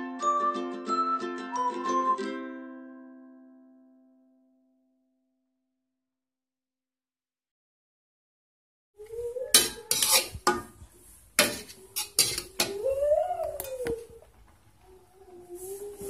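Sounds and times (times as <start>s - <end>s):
metal spatula scraping a wok: 9.5s - 12.8s.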